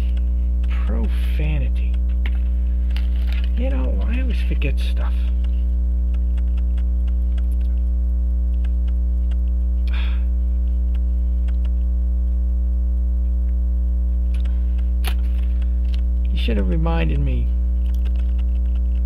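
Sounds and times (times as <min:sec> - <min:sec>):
electrical mains hum: 0:00.0 - 0:19.0
faint small clicks: 0:05.3 - 0:07.9, 0:08.5 - 0:09.6, 0:10.9 - 0:11.9, 0:14.3 - 0:16.3, 0:17.8 - 0:19.0.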